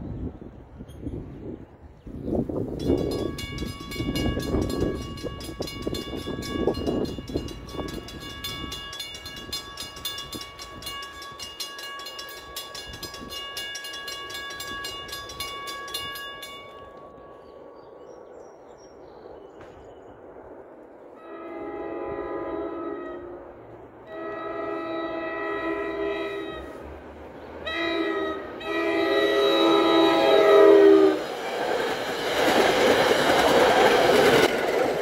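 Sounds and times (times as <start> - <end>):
crossing warning bell ringing: 2.7 - 17.6
train horn: 21.2 - 27.0, 27.6 - 31.3.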